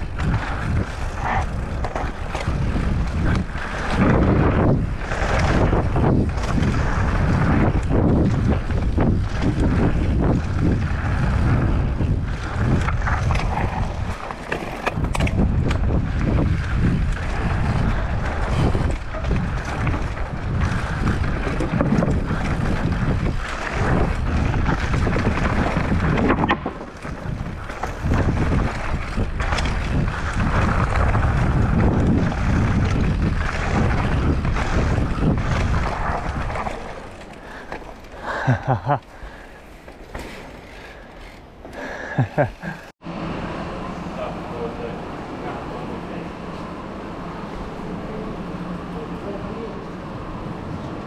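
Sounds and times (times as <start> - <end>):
wind buffeting microphone: 0.0 - 40.1
bike clattering over bumps: 0.0 - 42.9
tyres rolling over rocky ground: 0.0 - 42.9.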